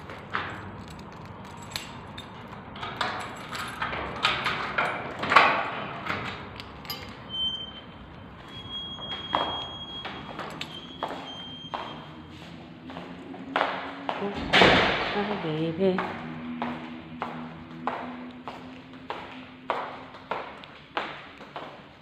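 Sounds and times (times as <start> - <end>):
sliding glass door clattering: 1.9 - 7.3.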